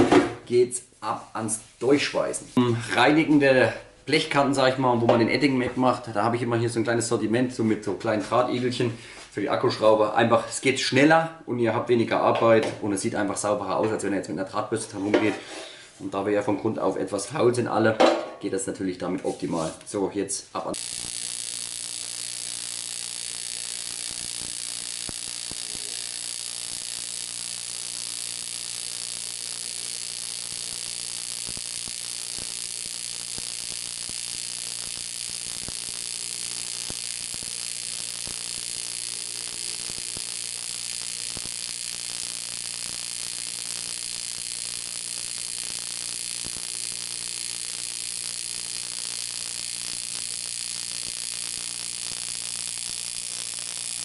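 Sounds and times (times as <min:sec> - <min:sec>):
welding arc buzzing and hissing: 0:00.0 - 0:02.6, 0:20.5 - 0:54.0.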